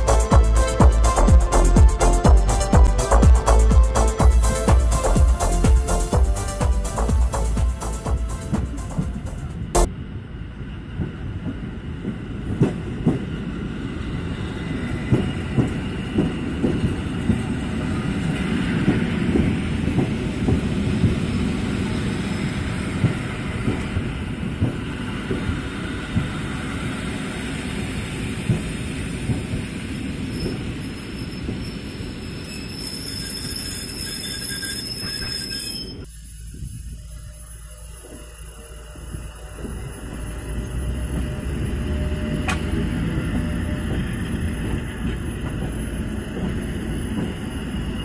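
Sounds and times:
train wheels rumbling on rails: 0.0s - 48.0s
clacks over rail joints: 11.0s - 13.4s, 15.0s - 21.7s, 22.9s - 26.4s, 42.2s - 47.4s
thin high squeal: 30.3s - 41.5s.

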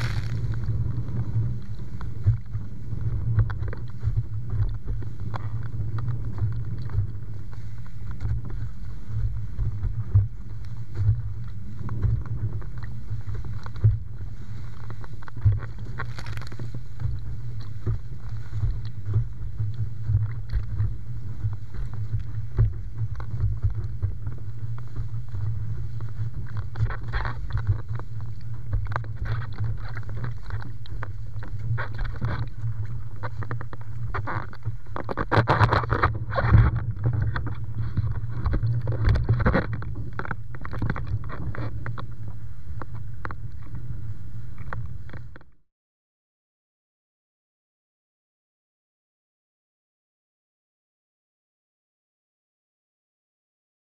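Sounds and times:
water rushing and splashing: 0.0s - 1.6s
wind buffeting microphone: 0.0s - 45.4s.

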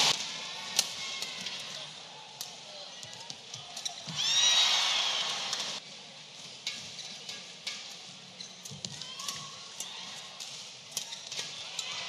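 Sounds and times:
crowd cheering loudly: 4.2s - 5.8s.

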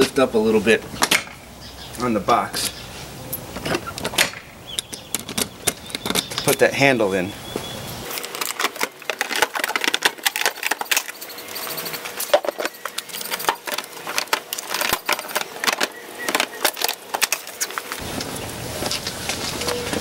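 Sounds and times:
hard case clicking and rattling: 3.6s - 6.6s, 8.1s - 18.0s.

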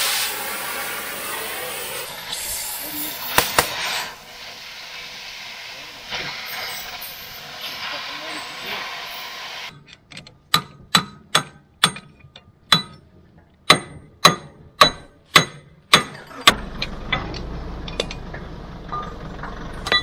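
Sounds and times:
sledgehammer striking steel pin: 10.5s - 16.6s.

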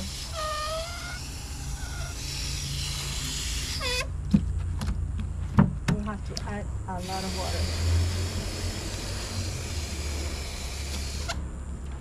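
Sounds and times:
hose nozzle water hissing: 0.0s - 4.1s, 7.0s - 11.4s.

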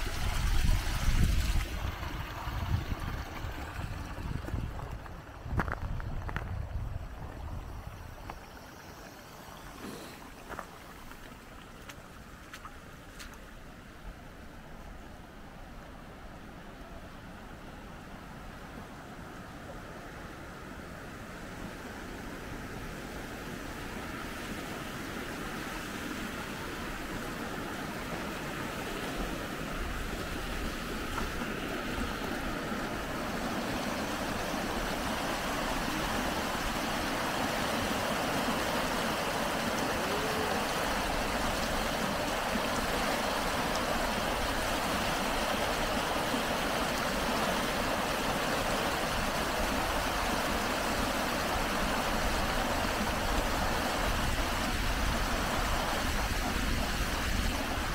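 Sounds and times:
stream water rushing: 0.0s - 57.9s.

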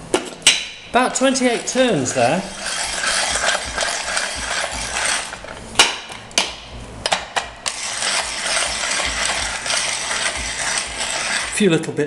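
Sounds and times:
coffee grinder hand-cranked rattle: 1.1s - 5.6s, 7.7s - 11.6s.

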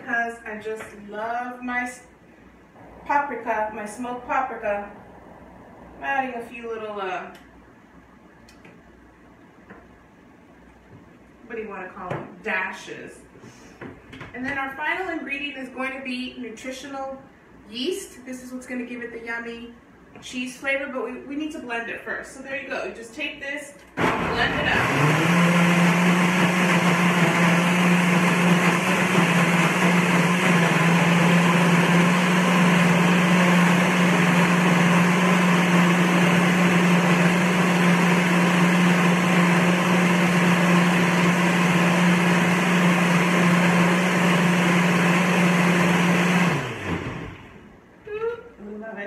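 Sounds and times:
blender running: 24.0s - 47.7s.

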